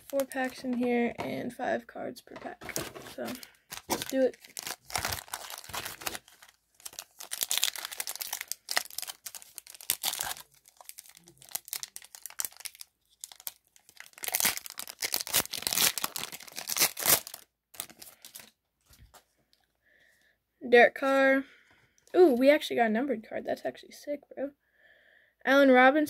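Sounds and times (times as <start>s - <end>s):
wrapper tearing and crinkling: 0.0s - 0.8s, 2.6s - 18.5s.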